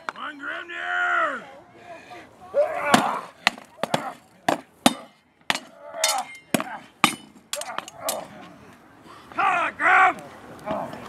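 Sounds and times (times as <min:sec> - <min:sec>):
swords striking wooden shields: 0:02.9 - 0:08.3
metallic ring of blows: 0:04.9 - 0:08.3.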